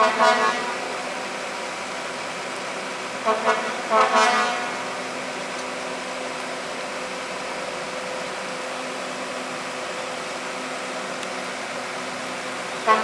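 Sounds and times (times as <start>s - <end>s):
train horn blast: 0.0s - 0.9s, 3.2s - 5.0s, 12.8s - 13.0s
railcar rushing noise: 0.0s - 13.0s.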